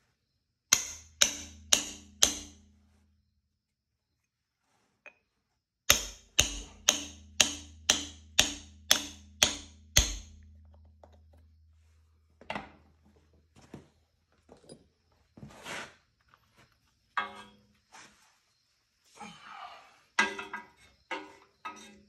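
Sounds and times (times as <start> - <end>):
hammer striking metal bolt: 0.7 - 2.7, 5.9 - 11.3.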